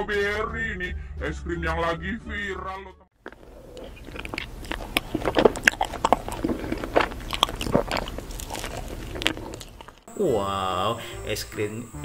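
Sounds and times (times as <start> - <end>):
person chewing ice cream: 3.2 - 10.1.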